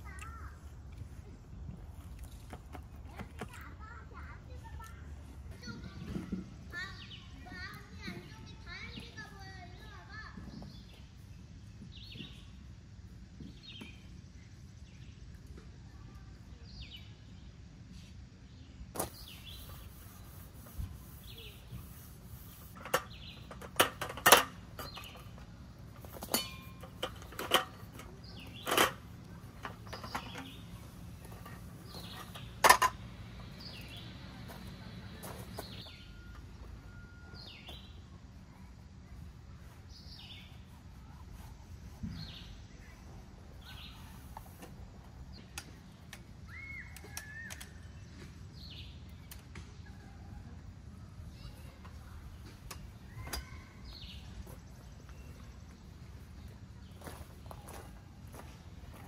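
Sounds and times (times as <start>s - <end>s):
bird chirping: 26.1s - 32.7s.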